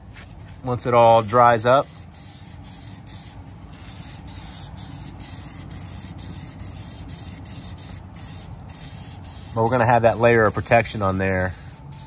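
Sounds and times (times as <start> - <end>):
aerosol spray can hissing: 1.8 - 10.6, 11.4 - 12.0.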